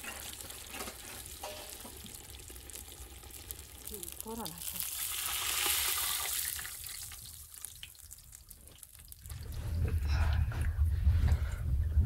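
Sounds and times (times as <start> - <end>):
hot oil sizzling in a pot: 0.0 - 9.3.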